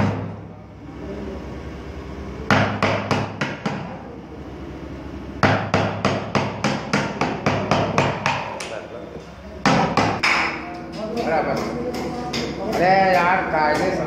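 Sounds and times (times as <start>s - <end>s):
hammer striking chisel into wood: 2.5s - 3.9s, 5.4s - 8.7s, 9.6s - 10.6s.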